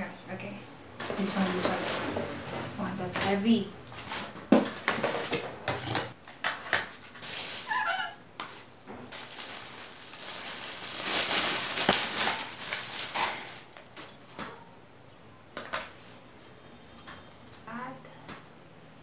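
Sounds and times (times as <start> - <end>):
plastic bag crinkling: 6.9 - 14.1.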